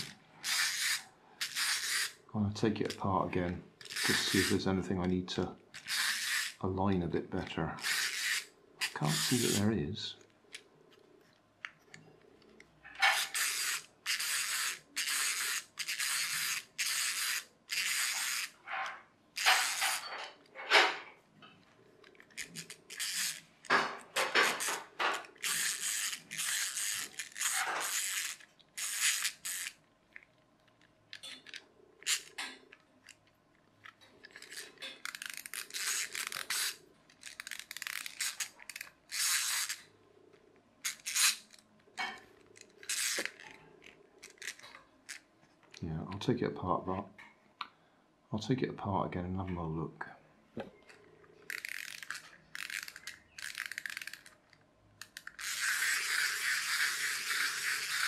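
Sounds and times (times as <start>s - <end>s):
clockwork toy whirring and clicking: 0.0s - 2.2s, 3.8s - 4.6s, 5.8s - 6.6s, 7.8s - 9.6s, 13.0s - 20.1s, 22.1s - 29.8s, 31.2s - 33.2s, 34.3s - 39.9s, 40.8s - 41.6s, 42.6s - 43.6s, 51.5s - 58.0s.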